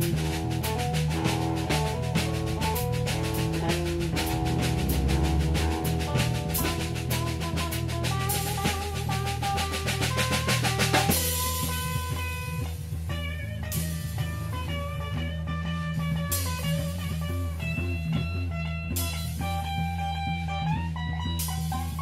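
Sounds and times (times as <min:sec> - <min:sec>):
fast drum fill: 0:00.0 - 0:15.1
rock music: 0:00.0 - 0:22.0
cymbal crash: 0:02.8 - 0:08.7.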